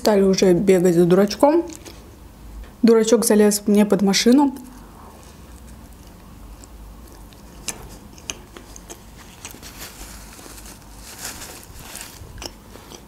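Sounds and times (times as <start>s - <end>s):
person chewing food: 4.6s - 13.0s
lip smacks: 5.4s - 9.7s
paper napkin rustle: 9.2s - 12.4s.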